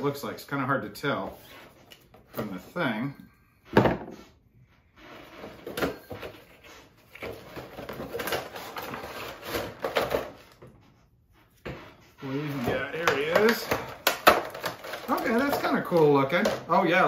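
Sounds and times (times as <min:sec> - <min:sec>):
cardboard and plastic packaging handled: 0:05.1 - 0:10.8, 0:12.3 - 0:17.0.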